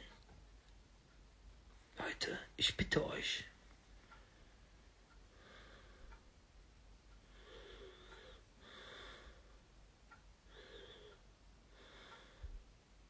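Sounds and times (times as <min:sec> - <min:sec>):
man breathing faintly: 0:04.1 - 0:06.4, 0:07.1 - 0:12.8.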